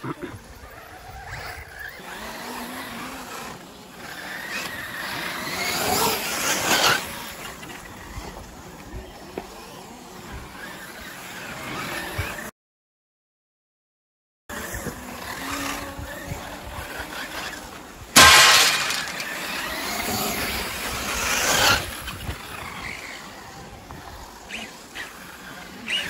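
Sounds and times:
rc car motors and tyres: 0:00.0 - 0:12.5, 0:14.5 - 0:26.0
loud crash sound effect: 0:18.2 - 0:19.4.

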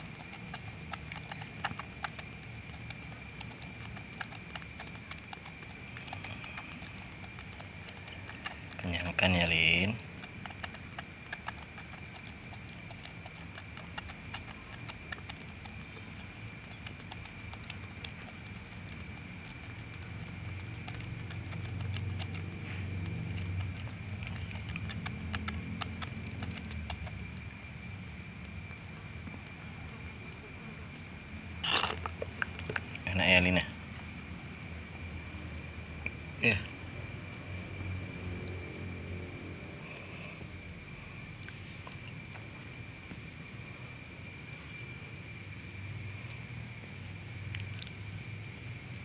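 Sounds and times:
monkey suckling bottle: 0:00.0 - 0:27.7, 0:31.6 - 0:33.1
low steady rumble: 0:00.0 - 0:49.0.

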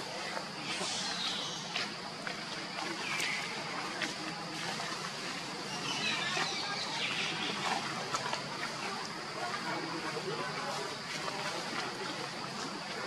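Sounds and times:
outdoor background hiss: 0:00.0 - 0:13.0
bird chirps: 0:00.7 - 0:01.8.

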